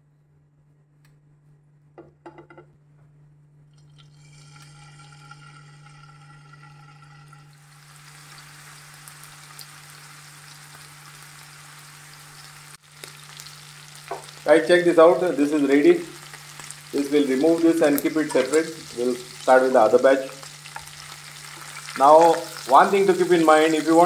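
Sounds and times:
prawns sizzling in hot oil: 4.1 - 24.0.

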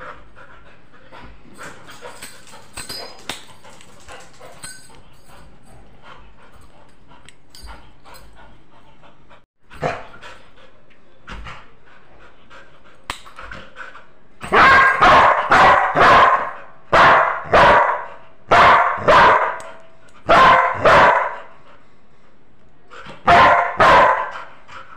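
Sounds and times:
dog barking: 14.5 - 19.6, 20.3 - 21.4, 23.2 - 24.3.

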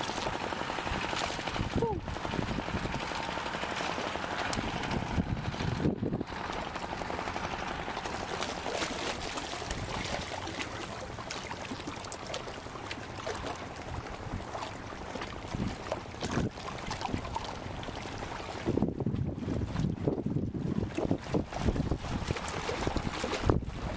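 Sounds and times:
wind on microphone: 0.0 - 3.3, 4.4 - 6.4, 15.5 - 17.5, 18.5 - 23.9
water splashing against concrete: 0.0 - 18.9, 20.8 - 23.9.

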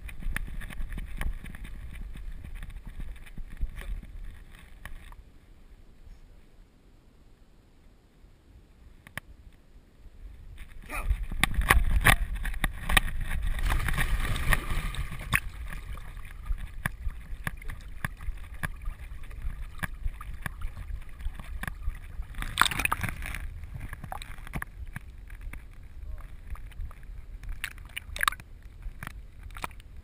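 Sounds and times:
water splashing and sloshing: 10.6 - 30.0.

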